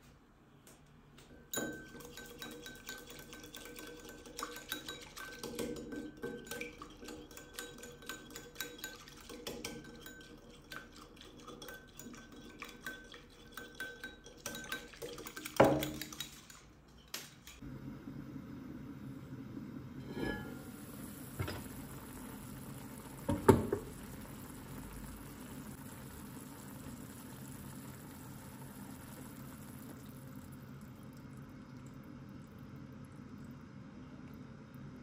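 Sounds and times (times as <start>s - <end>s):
whisk clinking against glass bowl: 1.5s - 16.7s
glass bowl ringing: 20.1s - 20.6s.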